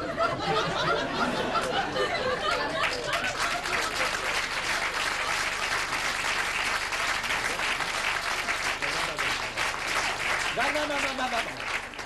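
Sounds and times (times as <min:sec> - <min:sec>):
audience applauding: 0:02.4 - 0:12.0.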